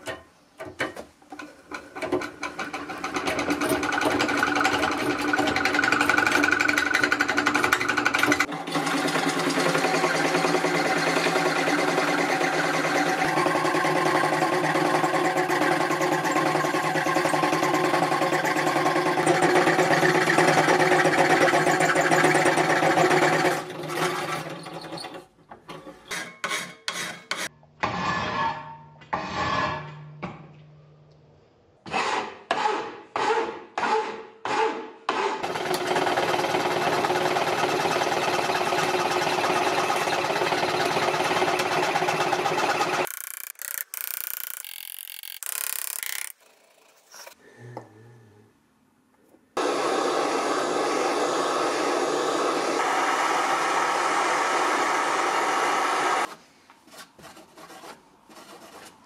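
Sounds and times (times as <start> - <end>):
treadle fret saw cutting metal: 1.8 - 28.0, 35.4 - 47.0.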